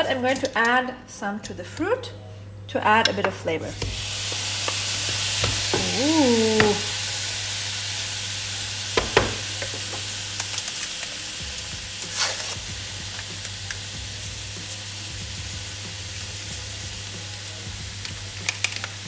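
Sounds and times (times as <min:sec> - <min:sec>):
fruit sizzling in a frying pan: 0:03.4 - 0:19.0
sugar sachet tearing open: 0:12.0 - 0:12.6.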